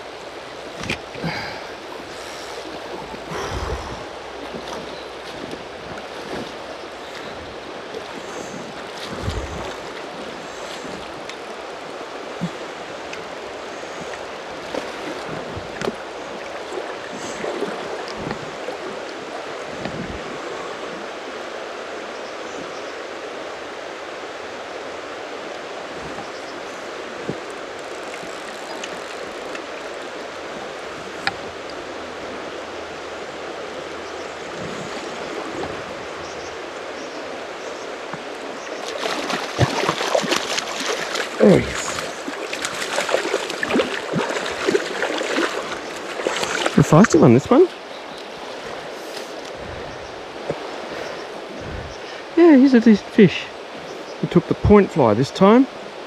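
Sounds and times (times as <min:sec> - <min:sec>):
river water flowing: 0:00.0 - 0:56.0
water splashing: 0:00.7 - 0:21.1, 0:25.2 - 0:32.4, 0:34.4 - 0:49.8.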